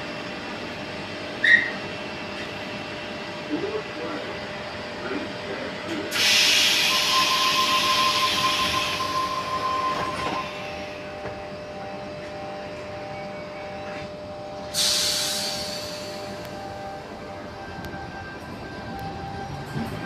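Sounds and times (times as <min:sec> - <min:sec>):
train door hiss: 0:06.1 - 0:10.8, 0:14.7 - 0:16.5.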